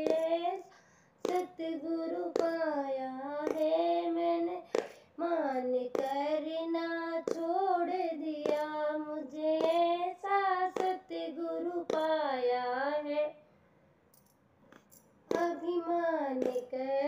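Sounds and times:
hand claps: 0.0s - 2.7s, 3.4s - 3.8s, 4.4s - 5.1s, 5.9s - 6.5s, 7.2s - 10.0s, 10.7s - 11.2s, 11.8s - 12.2s, 14.7s - 15.7s, 16.4s - 16.8s
person singing devotional song: 0.0s - 13.4s, 15.2s - 17.0s.

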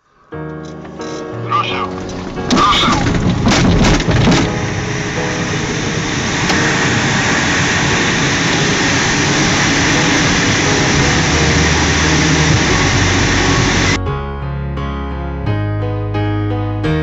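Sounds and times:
low steady hum: 1.9s - 14.0s
loud rush of air: 3.0s - 14.0s.

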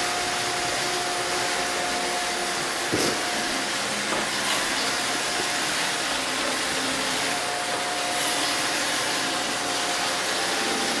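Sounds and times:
robot vacuum hiss: 2.8s - 11.0s.

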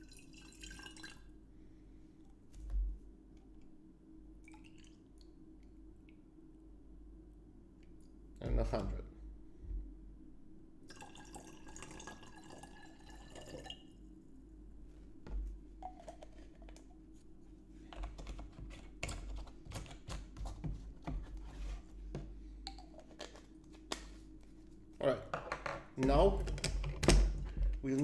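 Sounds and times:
water pouring into bottle: 0.0s - 1.2s, 10.9s - 13.8s
plastic items clicking and knocking: 25.4s - 28.0s.

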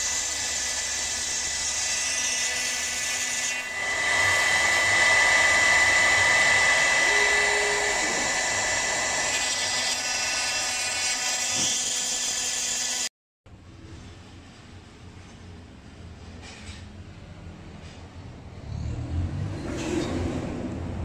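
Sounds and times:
router spindle whining: 0.0s - 13.1s.

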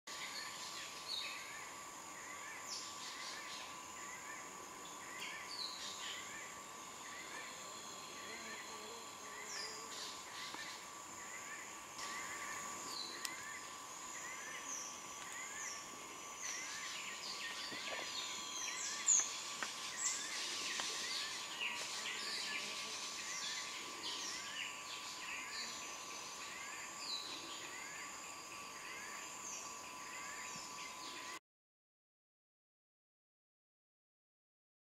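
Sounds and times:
insects droning: 0.1s - 31.4s
birds calling with falling whistles: 12.0s - 25.8s.

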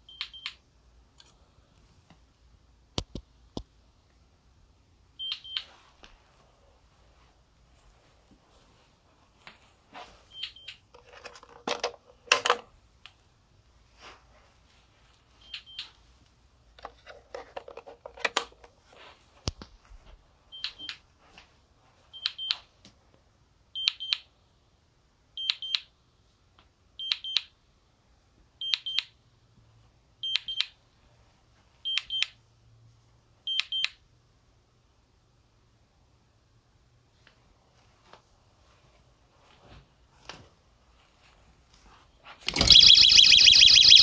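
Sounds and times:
alarm panel high beeps: 42.5s - 44.0s.

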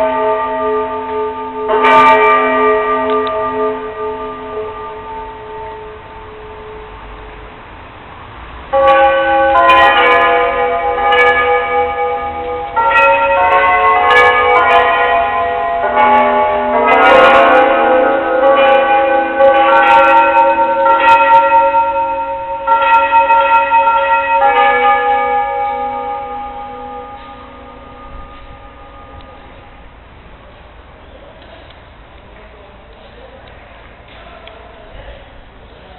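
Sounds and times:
bells ringing: 0.0s - 7.6s, 8.7s - 30.2s.

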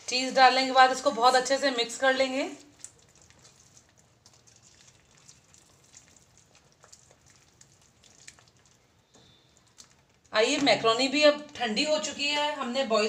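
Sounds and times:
soft pops from cooking gravy: 2.6s - 10.8s.

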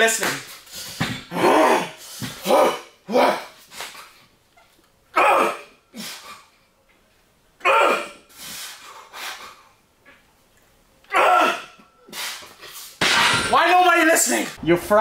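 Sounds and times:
man breathing and exhaling: 0.5s - 4.4s, 5.9s - 6.7s, 8.2s - 9.8s, 12.0s - 13.0s
man grunting: 1.3s - 3.6s, 5.2s - 5.7s, 7.6s - 8.2s, 11.1s - 11.7s.

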